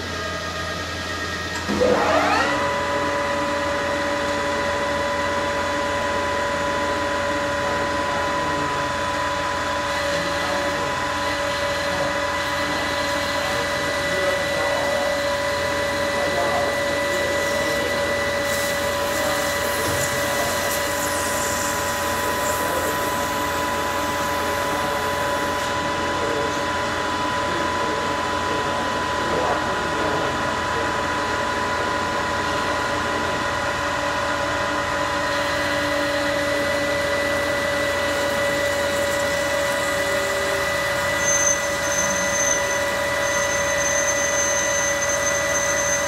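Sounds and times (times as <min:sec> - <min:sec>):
metal lathe gear whine: 0:00.0 - 0:46.0
lathe tool cutting hiss: 0:16.6 - 0:25.8, 0:35.3 - 0:46.0.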